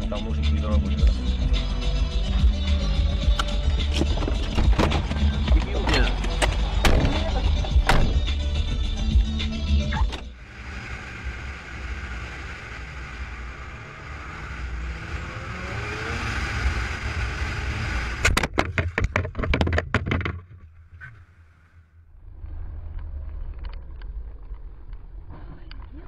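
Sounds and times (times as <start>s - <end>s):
low vehicle hum: 0.0s - 26.0s
motorcycle engine: 0.9s - 20.4s
sharp knocks and bangs: 4.0s - 7.2s, 7.8s - 8.3s.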